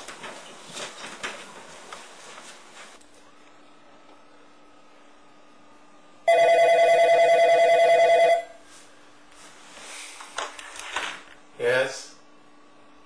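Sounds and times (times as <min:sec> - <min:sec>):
telephone ringing: 0:06.3 - 0:08.6.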